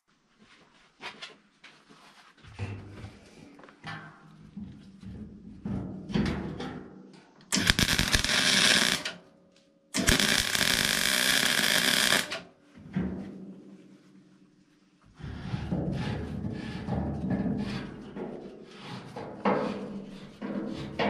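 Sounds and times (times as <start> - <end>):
welder arc buzzing and crackling: 7.6 - 9.2, 10.0 - 12.4.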